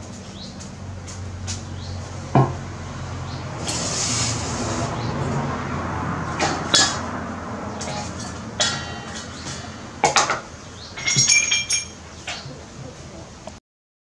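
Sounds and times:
kitchen utensils knocking on table: 7.8 - 10.4, 11.0 - 12.4
ringing metal clinks: 10.9 - 12.0.

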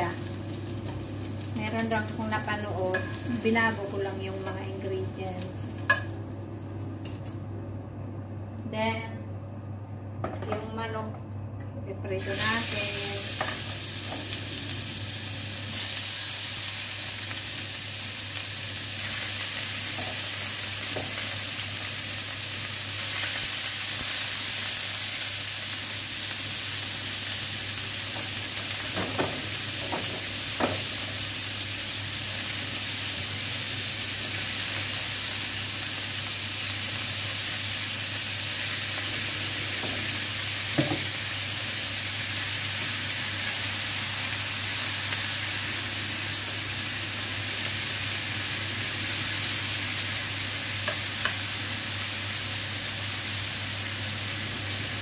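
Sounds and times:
chicken sizzling in oil: 12.2 - 55.0.

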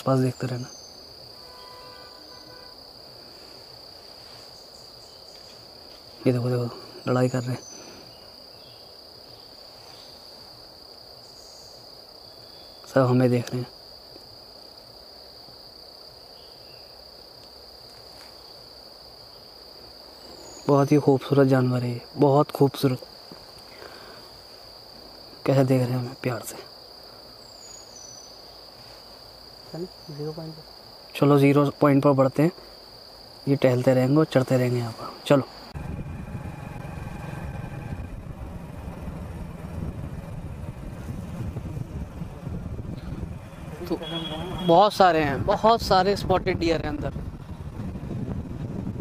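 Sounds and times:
insects trilling: 0.0 - 38.8, 39.4 - 47.6
vehicle engine and wind rumble: 35.6 - 49.0.

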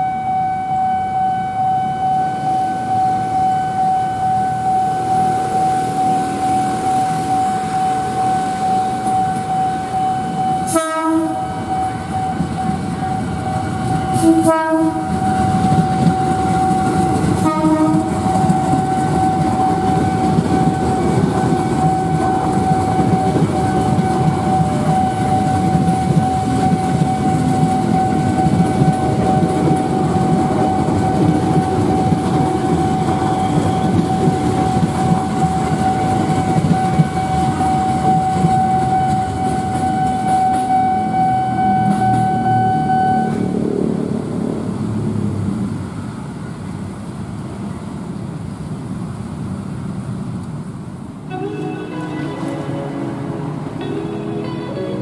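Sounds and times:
train horn blasts: 0.0 - 29.5, 35.2 - 43.6, 51.3 - 55.0
level-crossing warning alarm: 0.0 - 43.6
train wheels rumbling on rails: 1.9 - 51.2.

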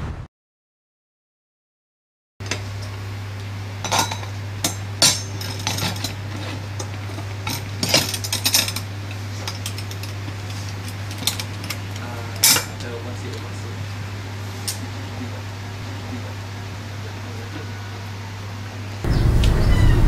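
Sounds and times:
steady low hum: 2.4 - 20.0.

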